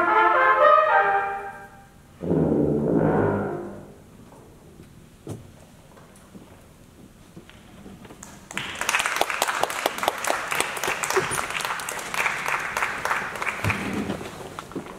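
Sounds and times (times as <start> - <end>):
audience applauding: 8.2 - 14.7.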